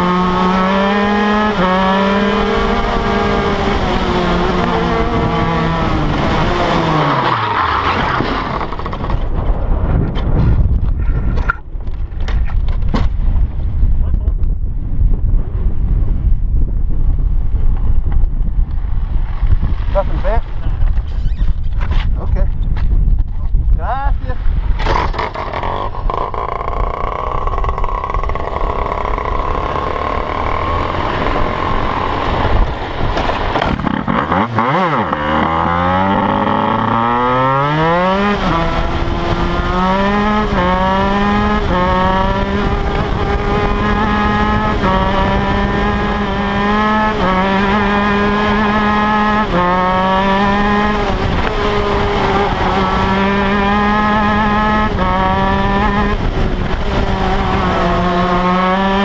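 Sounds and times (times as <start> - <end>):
kart engine revving: 0.0 - 9.3, 24.8 - 59.0.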